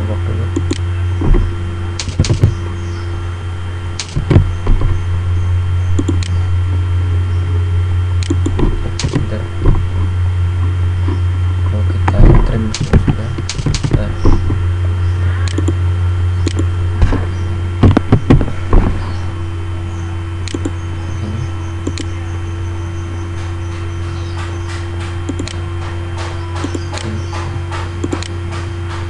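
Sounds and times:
low electrical hum: 0.0s - 29.0s
computer mouse clicks: 0.6s - 0.8s, 2.0s - 2.6s, 4.0s - 4.4s, 6.0s - 6.4s, 8.2s - 9.4s, 12.7s - 14.4s, 15.4s - 15.8s, 16.4s - 16.7s, 20.4s - 20.8s, 21.8s - 22.1s, 24.3s - 25.6s, 26.2s - 27.4s, 28.0s - 28.4s
heavier knocks: 1.2s - 2.7s, 4.0s - 5.1s, 8.5s - 10.1s, 12.1s - 14.6s, 16.9s - 19.5s.

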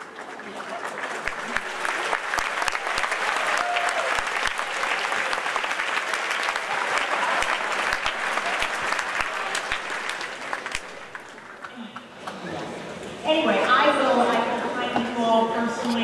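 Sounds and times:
large audience applauding: 0.0s - 11.9s.

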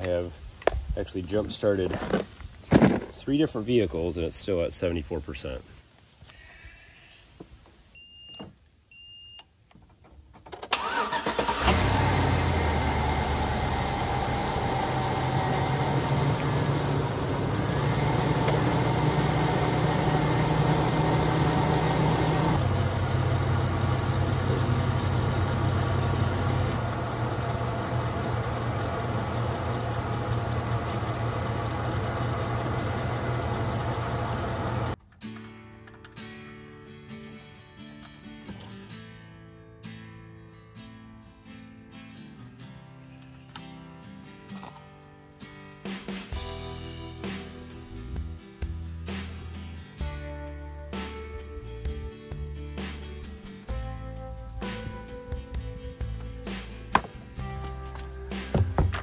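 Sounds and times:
car engine cranking and running: 10.0s - 35.0s.

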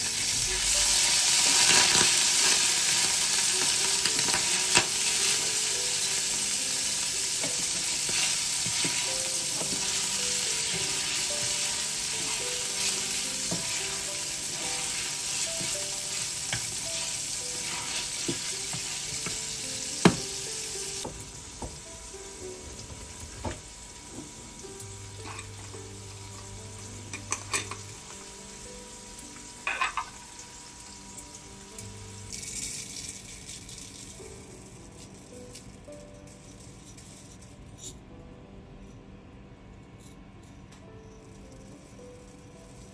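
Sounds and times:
dry rice pattering into a pan: 0.0s - 21.9s, 31.3s - 37.4s
vegetables sizzling in a pan: 0.0s - 34.6s
wooden spoon scraping a pan: 8.0s - 19.4s.

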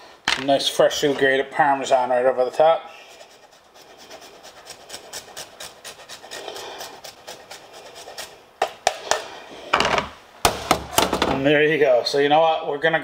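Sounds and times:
cheese rasping on grater: 3.0s - 8.5s.

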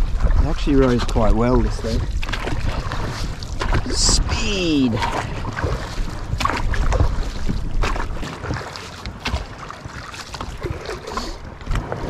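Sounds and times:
wind noise on microphone: 0.0s - 8.7s
oars splashing: 0.0s - 12.0s.

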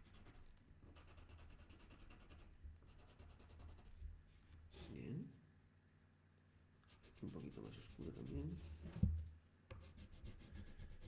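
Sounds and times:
marker scratching on wood: 0.0s - 4.0s.

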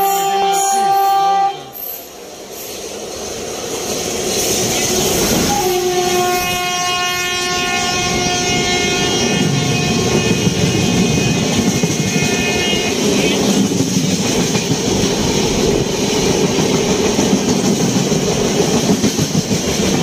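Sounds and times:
train horn blast: 0.0s - 2.0s, 4.8s - 13.6s
train wheels rumbling on rails: 0.0s - 20.0s.

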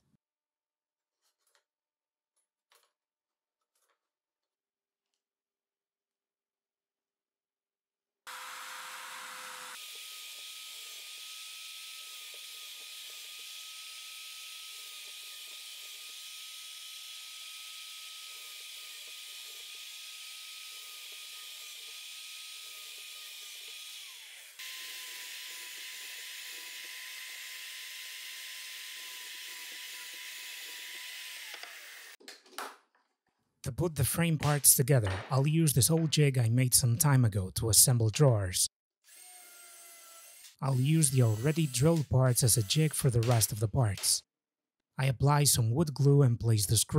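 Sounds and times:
drill press motor whine: 18.0s - 32.2s.

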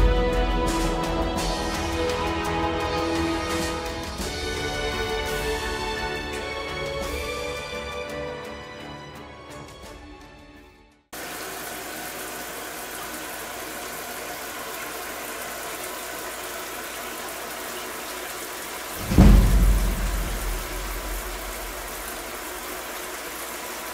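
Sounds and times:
background music: 0.0s - 11.1s, 19.0s - 23.0s
steady hiss: 11.2s - 23.9s
loud deep boom: 19.0s - 22.4s.

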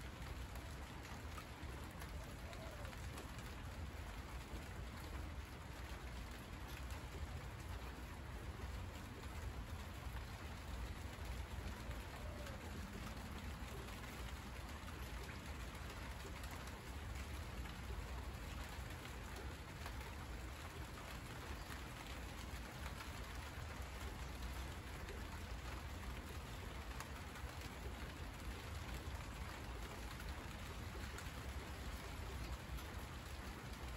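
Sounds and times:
rain on leaves: 0.0s - 33.9s.

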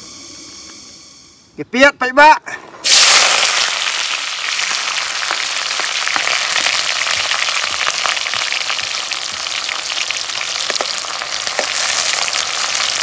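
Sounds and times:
onions sizzling in hot oil: 2.8s - 13.0s.

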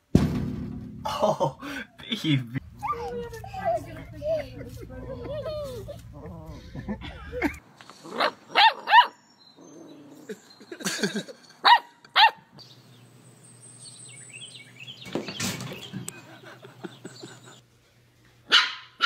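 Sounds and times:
puppy yapping: 18.5s - 19.0s.

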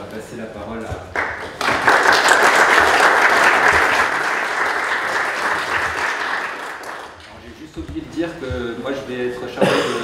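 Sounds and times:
audience applauding: 1.2s - 7.3s.

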